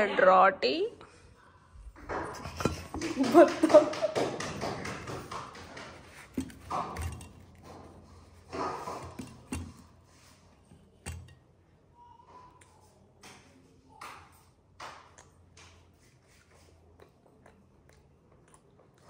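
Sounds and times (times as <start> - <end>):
dishes and utensils tapping: 2.0 - 11.4.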